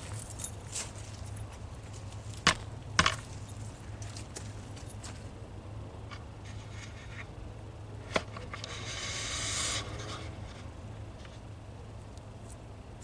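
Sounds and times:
low steady hum: 0.0 - 13.0
rising hiss: 8.7 - 10.6.

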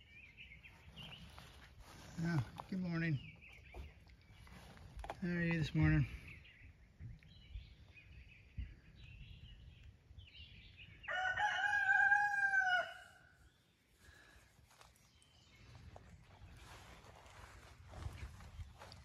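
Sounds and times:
small birds chirping: 0.0 - 12.1, 12.7 - 19.0
rooster crowing: 11.1 - 13.3.

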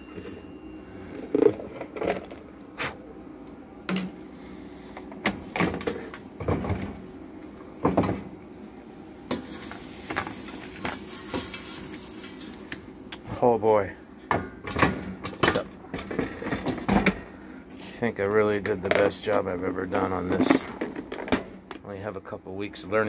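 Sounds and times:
air fryer basket clunks: 7.8 - 8.3, 14.3 - 17.3.

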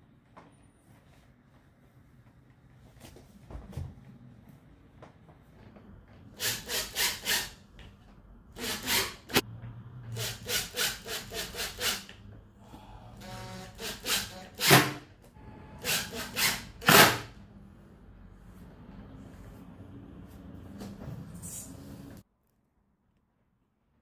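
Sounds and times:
cordless drill driving screws: 8.6 - 9.4.

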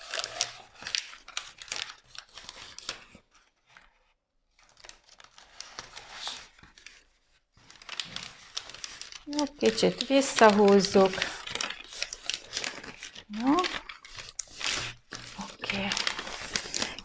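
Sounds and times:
vinyl film and backing crinkling: 0.0 - 17.0.

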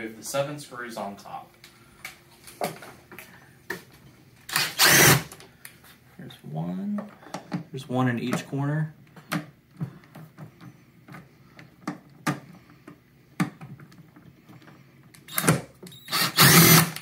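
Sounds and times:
cordless drill running: 4.5 - 5.3, 15.3 - 17.0.

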